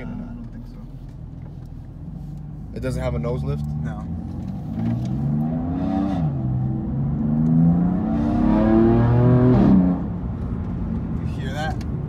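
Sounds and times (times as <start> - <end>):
car engine accelerating hard: 2.8 - 11.6.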